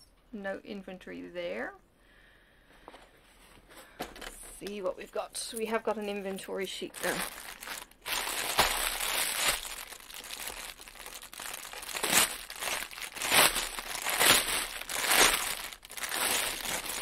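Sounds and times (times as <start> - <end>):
plastic bags crinkling: 6.6 - 17.0.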